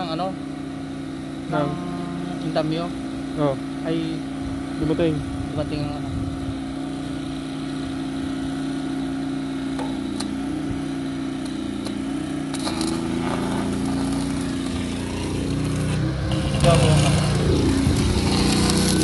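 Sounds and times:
generator engine running: 0.0s - 19.0s.

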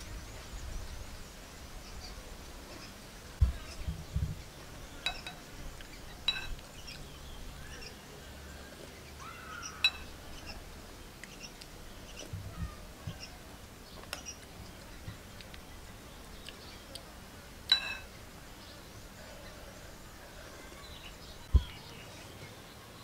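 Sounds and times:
spoon clinking on ceramic bowl: 5.0s - 5.4s, 6.2s - 6.6s, 9.8s - 10.1s, 17.7s - 18.1s.

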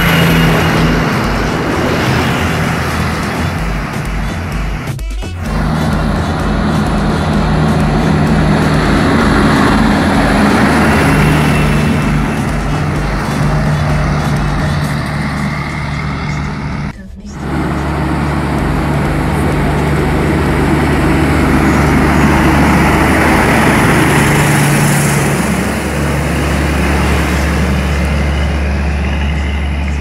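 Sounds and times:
diesel trucks driving past: 0.0s - 30.0s.

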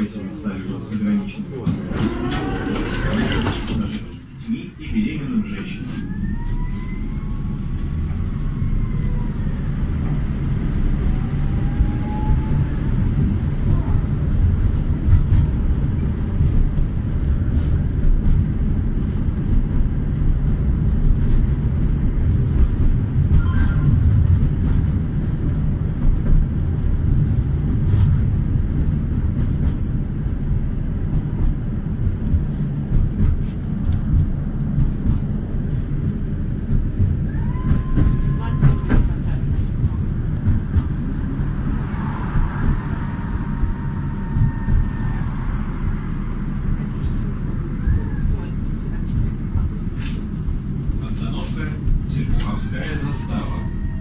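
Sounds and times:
tram rumbling along track: 0.0s - 54.0s
faint siren wailing: 5.6s - 13.2s, 37.3s - 39.0s, 41.7s - 46.5s, 52.8s - 54.0s.

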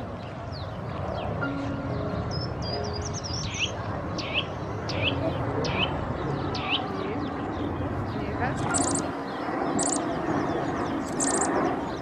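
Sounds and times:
outdoor background rumble: 0.0s - 12.0s
bird twittering: 8.6s - 12.0s
sharp downward bird calls: 8.7s - 9.1s, 9.8s - 10.1s, 11.0s - 11.5s.

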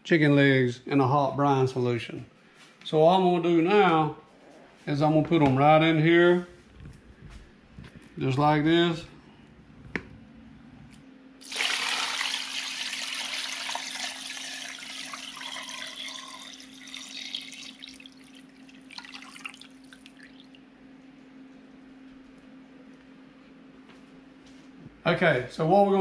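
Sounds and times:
liquid pouring and splashing: 11.4s - 20.6s
water dripping: 12.3s - 20.6s.

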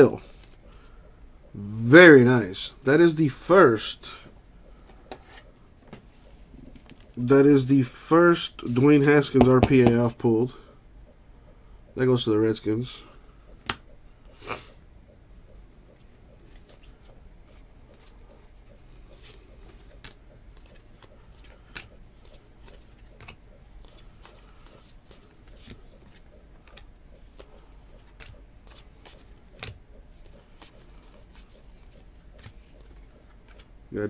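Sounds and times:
cards flipping and sliding: 16.4s - 33.7s.

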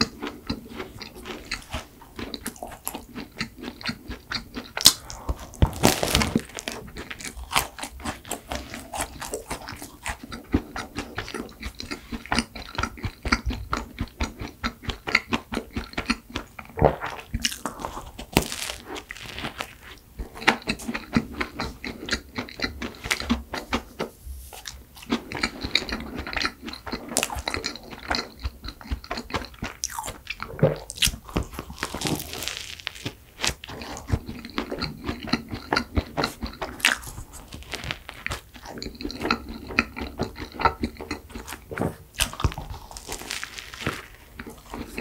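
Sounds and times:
crunching pastry while chewing: 0.0s - 45.0s.

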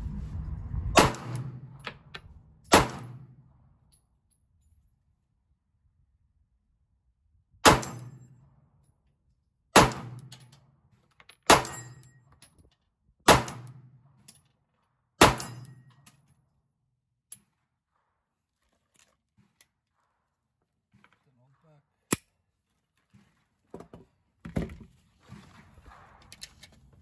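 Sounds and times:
pistol shots with echo: 7.6s - 8.2s, 9.8s - 10.3s, 13.3s - 13.8s, 15.2s - 15.7s.

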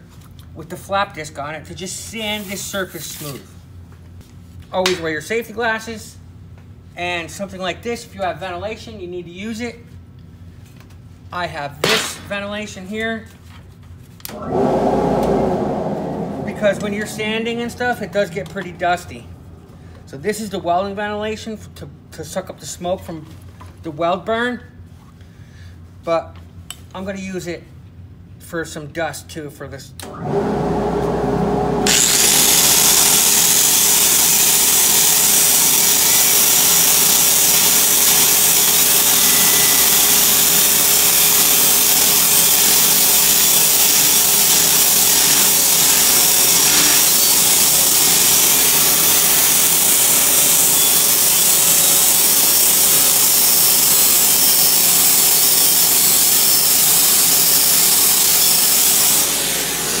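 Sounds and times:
angle grinder grinding steel: 31.0s - 60.0s.

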